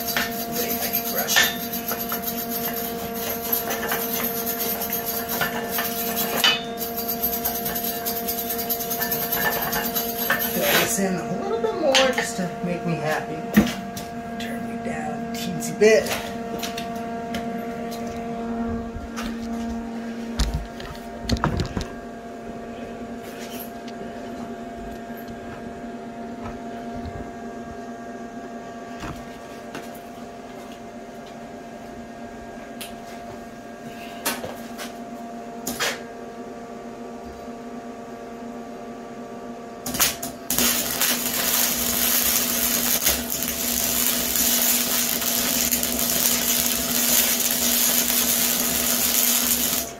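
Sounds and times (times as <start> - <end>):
welder arc crackling sizzle: 0.0 - 13.4, 39.8 - 49.9
steady hum: 0.0 - 49.9.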